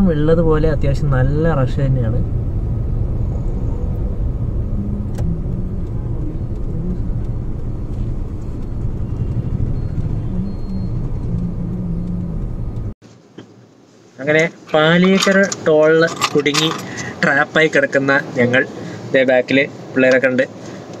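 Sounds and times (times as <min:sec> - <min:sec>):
car engines running: 0:00.0 - 0:13.0, 0:14.4 - 0:21.0
low road rumble: 0:00.0 - 0:13.6.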